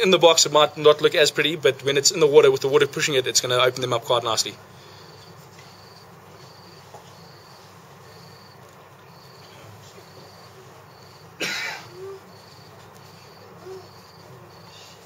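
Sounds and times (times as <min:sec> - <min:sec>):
person coughing: 0:11.4 - 0:12.2.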